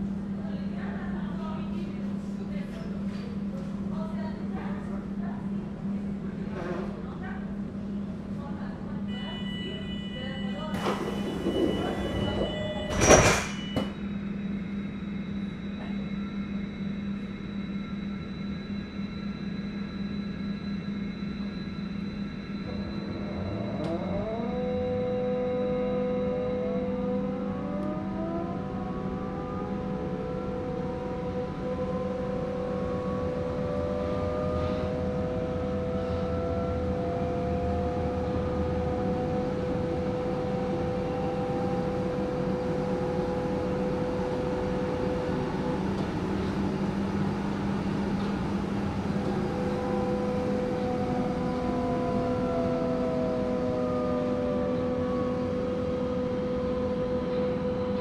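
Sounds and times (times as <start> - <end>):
constant hum: 0.0 - 58.0
train traction drive whining: 28.2 - 57.0.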